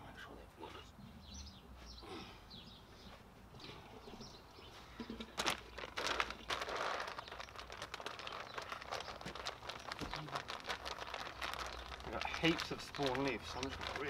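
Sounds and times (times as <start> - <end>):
plastic bag crinkling: 5.3 - 14.0.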